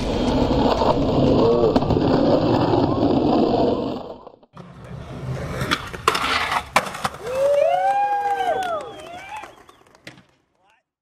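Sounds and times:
skateboard rolling: 0.0 - 10.5
skateboard clacks: 5.6 - 10.8.

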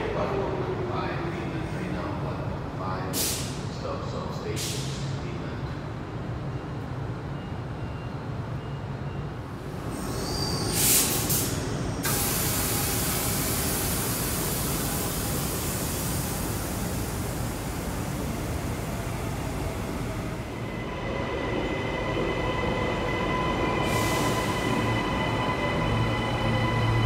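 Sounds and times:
train air brakes hissing: 3.2 - 3.7, 4.6 - 5.1, 9.7 - 27.0.

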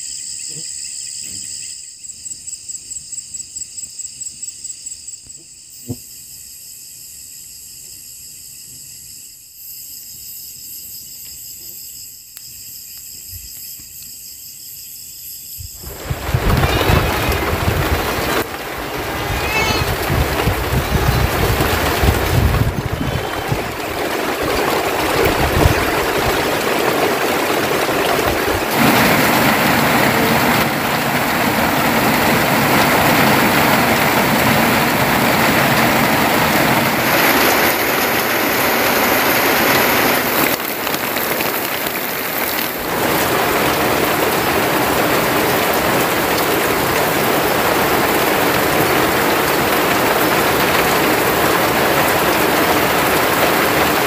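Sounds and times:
heavy rain: 15.8 - 54.0.

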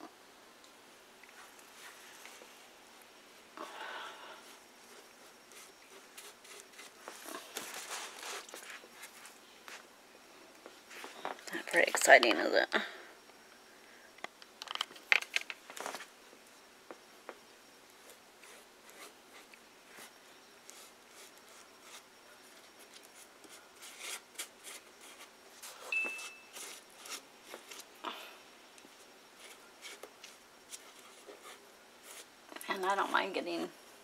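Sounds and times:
paper rustling and crinkling: 5.6 - 9.4.

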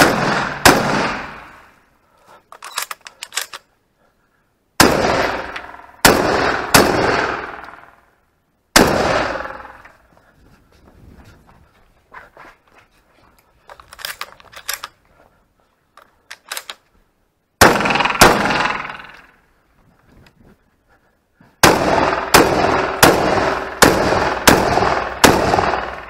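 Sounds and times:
shotgun shots echoing: 0.0 - 1.7, 4.8 - 8.0, 8.7 - 9.8, 17.6 - 19.2, 21.6 - 26.0
light clicks and rustles: 10.2 - 17.0.

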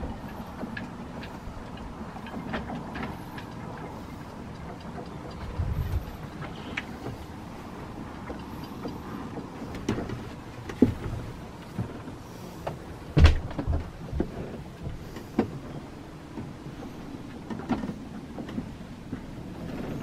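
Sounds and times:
low rumble: 3.8 - 8.2
heavy thump: 13.2 - 13.9
knocks and bumps: 13.2 - 15.5.

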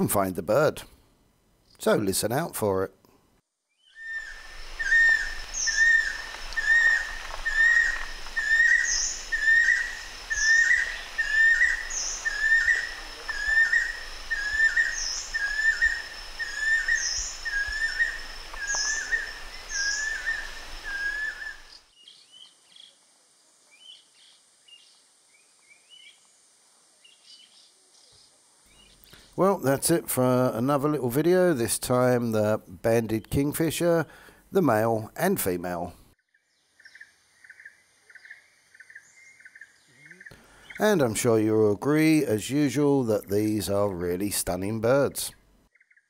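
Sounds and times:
kingfisher whistled calls: 3.8 - 21.8.

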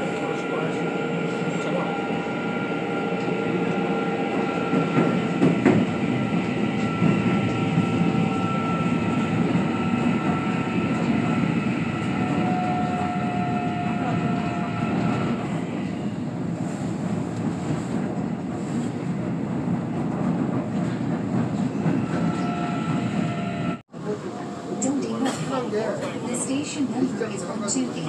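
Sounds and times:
train rumbling on rails: 0.0 - 28.0
train wheels knocking: 4.4 - 8.4.

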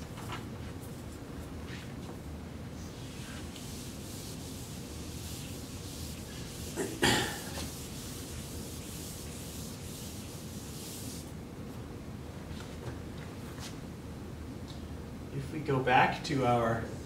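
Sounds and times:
eraser rubbing on whiteboard: 2.9 - 11.3.

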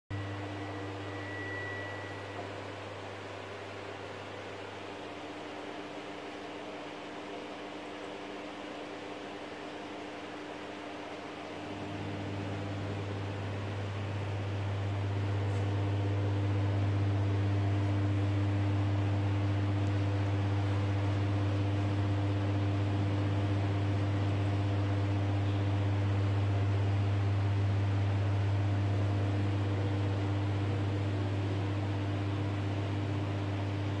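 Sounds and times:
fan hiss: 0.2 - 34.0
film scanner humming: 9.6 - 34.0.

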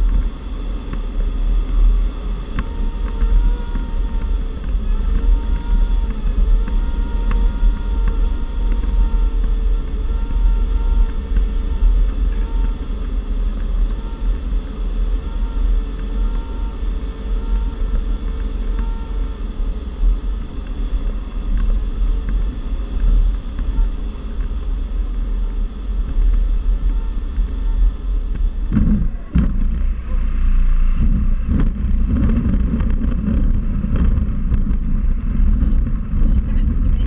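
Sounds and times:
airflow rushing over glider: 16.9 - 37.0
wheel rumbling over grass: 20.3 - 37.0.

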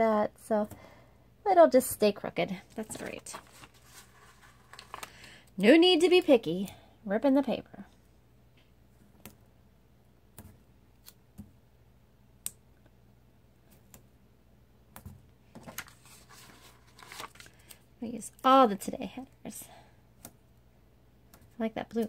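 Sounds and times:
paper sheet rustling: 2.6 - 5.4, 15.5 - 17.8.

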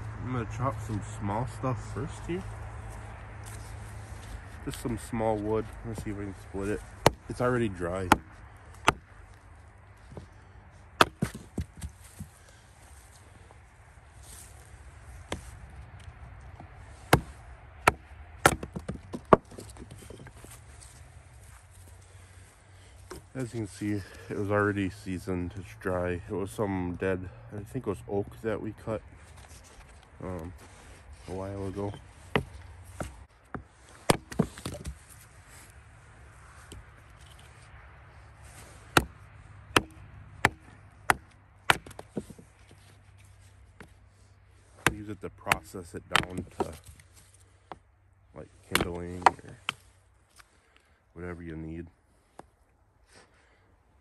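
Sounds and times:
hatchet chopping wood: 5.9 - 9.1, 10.9 - 12.3, 16.6 - 20.2, 31.8 - 35.0, 38.8 - 42.5, 44.8 - 46.9, 48.6 - 49.8.

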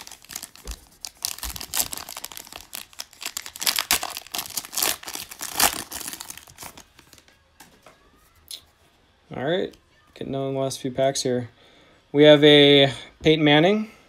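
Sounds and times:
foil wrapper crackling: 0.0 - 7.4.

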